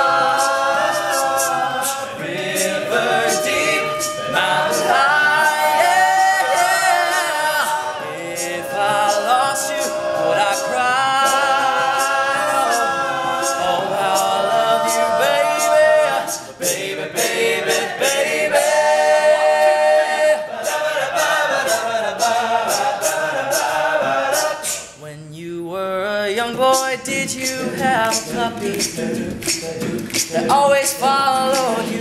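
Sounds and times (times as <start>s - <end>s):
sharp ticking beat: 0.0s - 19.4s, 26.4s - 32.0s
male a cappella harmony: 0.0s - 32.0s.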